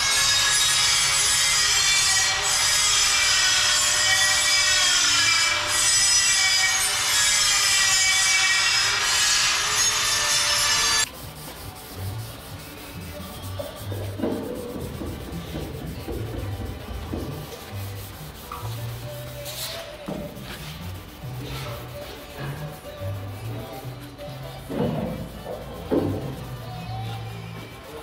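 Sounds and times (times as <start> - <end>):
angle grinder grinding steel: 0.0 - 11.1.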